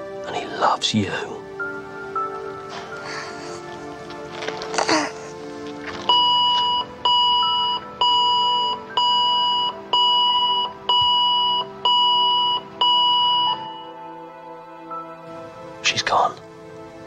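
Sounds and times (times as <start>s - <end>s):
heart monitor beeping: 6.0s - 14.0s.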